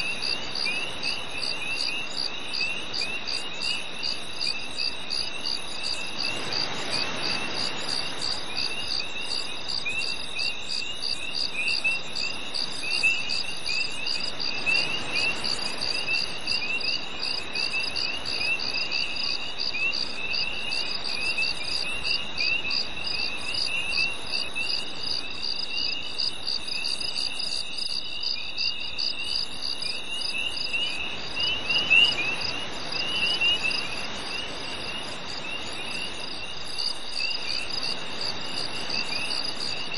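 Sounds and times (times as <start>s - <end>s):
soft steady hiss: 0.0s - 39.9s.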